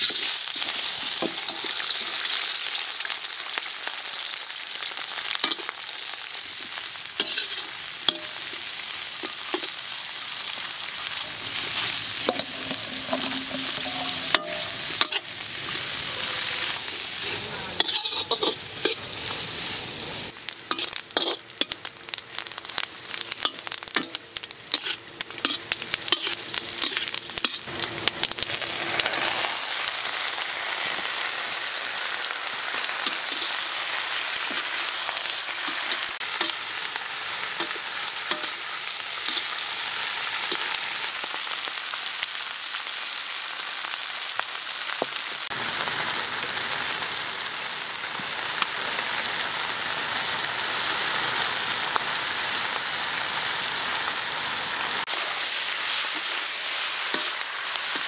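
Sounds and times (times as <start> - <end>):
metal spatula scraping wok: 0.0 - 2.4, 7.2 - 8.6, 11.1 - 21.8, 23.4 - 27.7, 37.2 - 39.6, 55.0 - 58.0
food sizzling in wok: 0.0 - 58.0.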